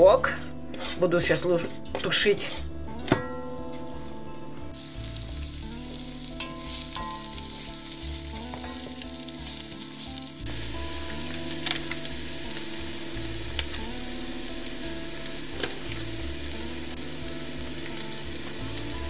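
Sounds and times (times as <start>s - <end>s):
soft background music: 0.0s - 19.0s
onion sizzling in hot oil: 4.8s - 19.0s.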